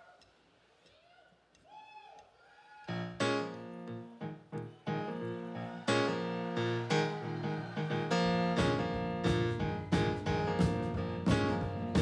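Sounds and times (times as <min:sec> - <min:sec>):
keyboard chords: 0:03.0 - 0:12.0
bass and drums: 0:08.6 - 0:12.0.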